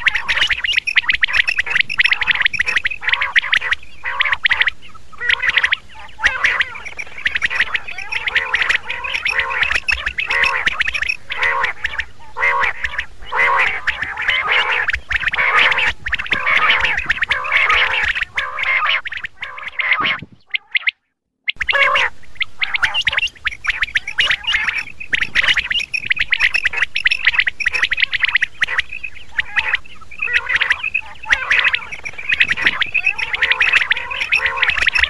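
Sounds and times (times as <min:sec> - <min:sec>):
quails calling: 0:00.0 - 0:35.0.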